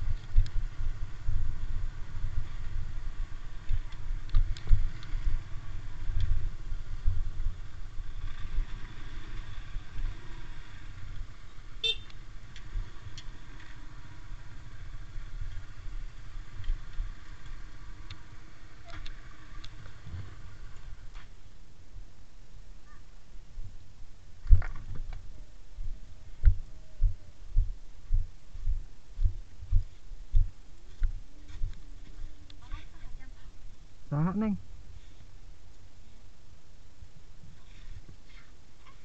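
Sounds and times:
wind rumble on microphone: 0:00.0 - 0:08.9, 0:23.4 - 0:33.9
motorcycle engine running: 0:00.0 - 0:21.3
motorcycle horn toot: 0:11.8 - 0:12.1.

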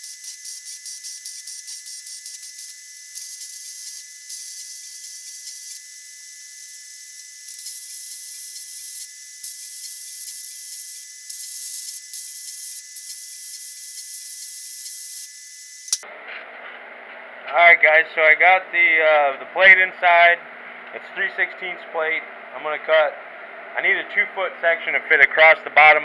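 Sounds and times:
welder arc crackling and hissing: 0:00.0 - 0:16.0.

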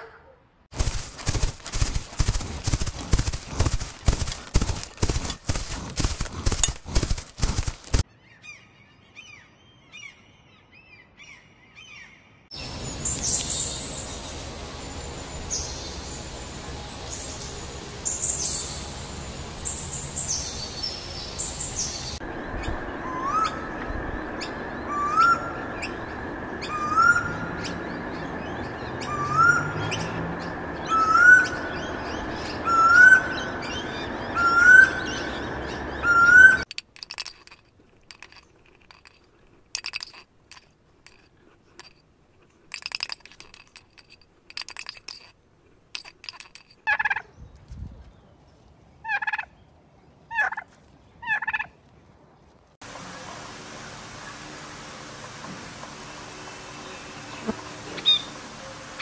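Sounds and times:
birds chirping: 0:00.7 - 0:36.7, 0:53.1 - 0:59.0
steady hiss: 0:12.6 - 0:27.6, 0:52.8 - 0:59.0
bird call rising in pitch: 0:22.6 - 0:36.6.

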